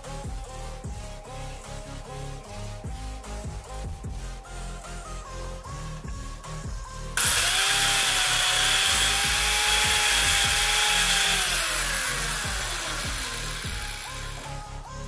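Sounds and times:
disc cutter grinding plastic: 7.2s - 14.5s.

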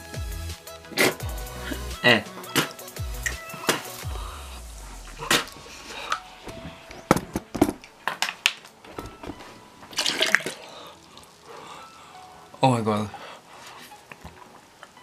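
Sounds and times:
person coughing and spitting: 0.9s - 4.0s, 5.2s - 5.6s.

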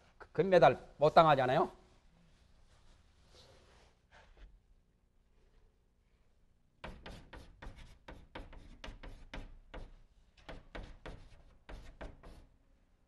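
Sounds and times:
chalk writing on blackboard: 6.8s - 12.5s.

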